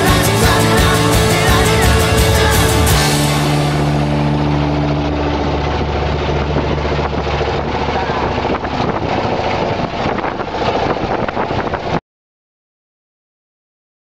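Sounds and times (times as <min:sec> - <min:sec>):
motorboat engine running: 0:00.0 - 0:12.0
wind buffeting microphone: 0:03.0 - 0:12.0.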